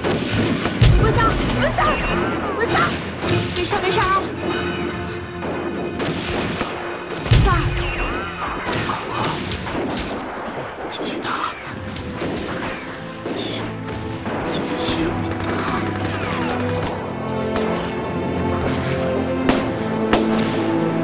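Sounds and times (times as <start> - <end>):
gunfire: 0.0 - 2.2, 5.4 - 17.0
dramatic music score: 0.0 - 21.0.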